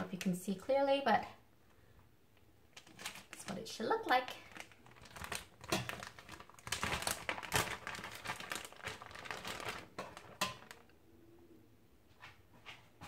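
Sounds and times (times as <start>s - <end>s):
plastic bag crinkling: 2.7s - 10.9s.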